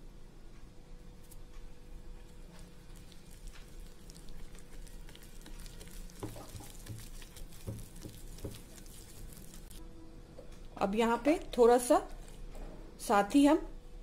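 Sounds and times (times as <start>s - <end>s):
spatula stirring sticky batter: 2.2s - 9.8s.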